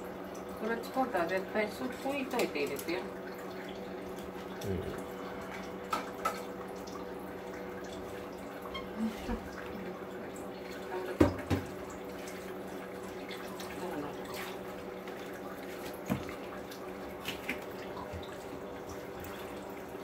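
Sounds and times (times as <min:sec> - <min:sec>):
electric hum: 0:00.0 - 0:11.0.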